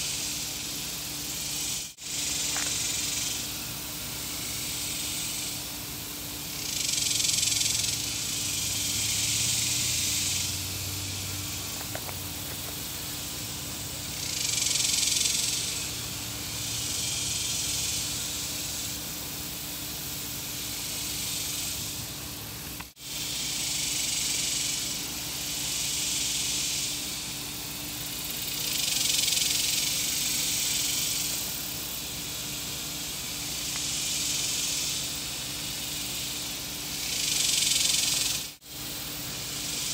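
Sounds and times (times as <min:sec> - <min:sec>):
faint steady hum: 0:00.0 - 0:39.9
insect chorus high hiss: 0:00.0 - 0:39.9.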